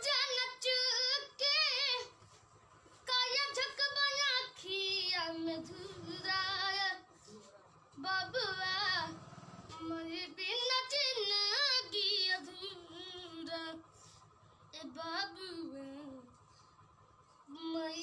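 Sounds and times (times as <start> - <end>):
boy singing unaccompanied: 0.0 - 2.2, 3.0 - 7.4, 8.0 - 14.0, 14.7 - 16.3, 17.5 - 18.0.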